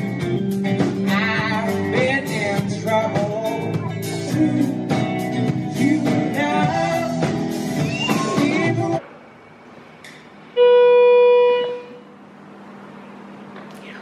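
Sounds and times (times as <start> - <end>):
live band playing: 0.0 - 8.9
lead vocal singing: 1.0 - 9.1
loud steady beep: 10.6 - 12.0.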